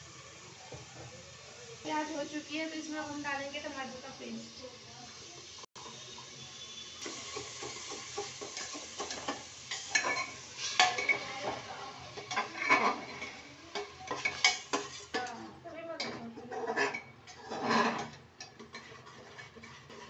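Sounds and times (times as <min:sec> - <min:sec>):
masala sizzling in pot: 0:00.0 - 0:20.0
metal spoon scraping pot: 0:06.7 - 0:20.0.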